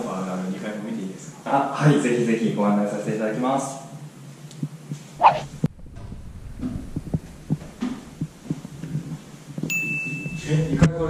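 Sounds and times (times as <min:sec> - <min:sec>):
rising whoosh: 0:05.2 - 0:07.6.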